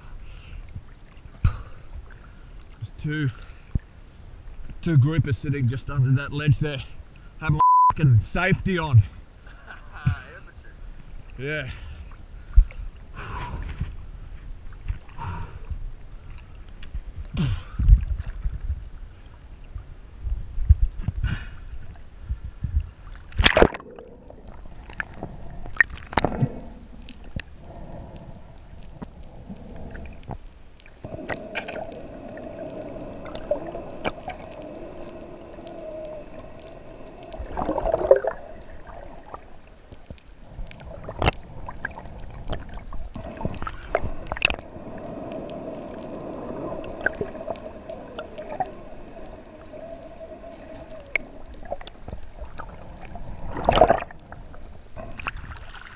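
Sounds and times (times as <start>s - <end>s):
underwater hum: 0.0s - 55.9s
water sloshing: 22.7s - 55.9s.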